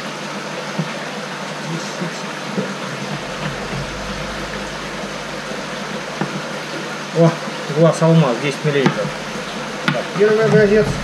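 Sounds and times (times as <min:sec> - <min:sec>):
machine noise: 0:02.8 - 0:11.0.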